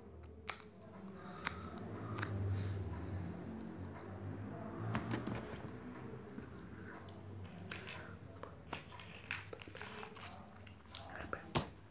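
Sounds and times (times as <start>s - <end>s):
clicks and rustles of hands and clothing: 6.4s - 11.9s.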